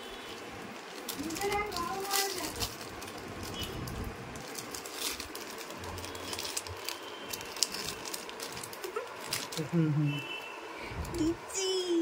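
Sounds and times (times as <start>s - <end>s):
plastic packet crinkling: 0.3s - 9.8s.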